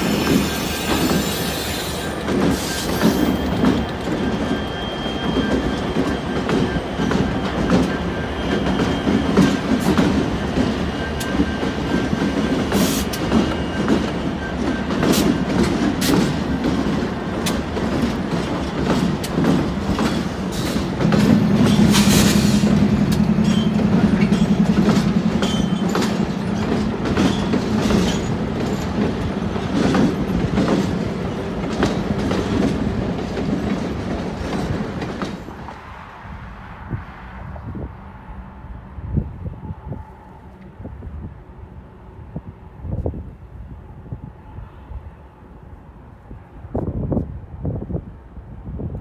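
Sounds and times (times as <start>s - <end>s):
wheels clacking over rail joints: 0.0s - 35.8s
diesel locomotive engine droning: 0.0s - 49.0s
train rumble: 0.0s - 49.0s.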